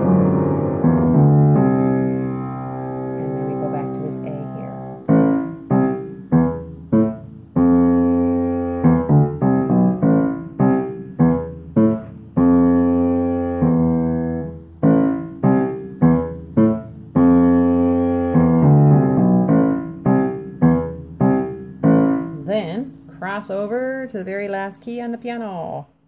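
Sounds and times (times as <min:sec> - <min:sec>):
piano chords: 0:00.0 - 0:24.7.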